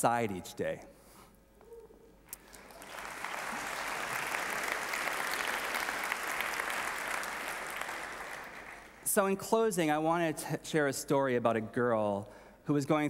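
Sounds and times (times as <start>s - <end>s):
large audience applauding: 2.4s - 9.1s.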